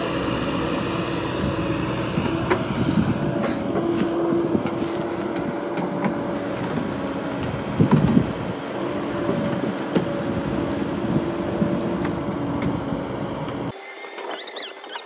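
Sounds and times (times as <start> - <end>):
excavator engine running: 0.0 - 15.0.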